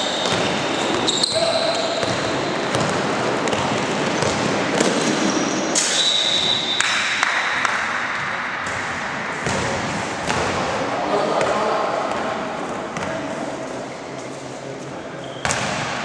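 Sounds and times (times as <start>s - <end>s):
referee whistle: 0.0s - 2.0s, 5.8s - 6.8s
sneakers squeaking on court: 0.0s - 6.8s, 15.1s - 16.0s
hubbub in a gym: 0.0s - 16.0s
basketball bouncing: 2.0s - 5.2s, 8.2s - 10.6s.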